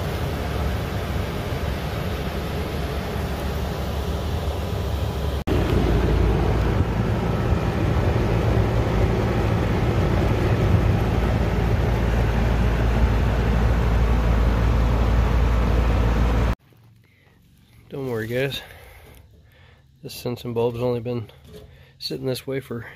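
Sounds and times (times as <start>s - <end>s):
air conditioner unit running: 0.0s - 16.6s.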